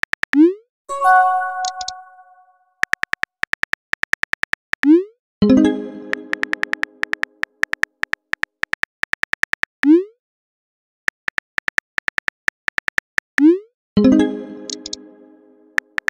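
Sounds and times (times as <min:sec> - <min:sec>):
synthetic keyboard clicks: 0:00.0 - 0:05.0, 0:06.1 - 0:10.0, 0:11.1 - 0:13.6, 0:14.7 - 0:15.0, 0:15.8 - 0:16.0
rising message-sent tone: 0:00.9 - 0:02.5.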